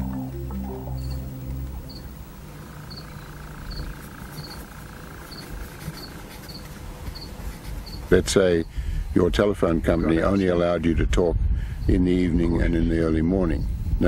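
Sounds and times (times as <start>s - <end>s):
background music: 0.0s - 2.5s
cricket high double chirp: 0.0s - 6.6s
steady insect drone: 0.0s - 9.3s.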